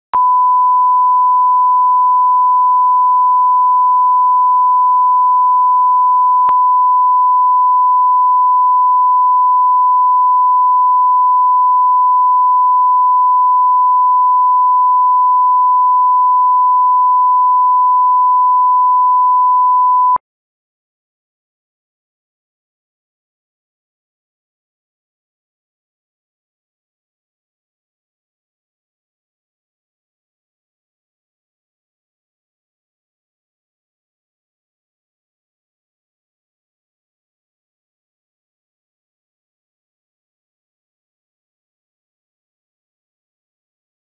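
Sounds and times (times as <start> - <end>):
pure test tone: 0.2 - 20.2.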